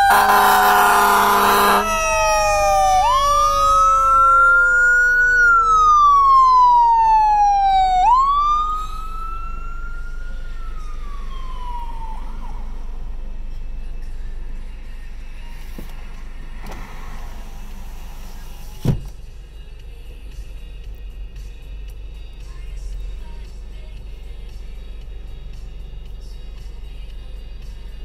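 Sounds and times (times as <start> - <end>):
loud horn blast: 0.0 - 3.8
lower siren tone gliding down: 0.0 - 14.1
sirens wailing: 0.0 - 14.2.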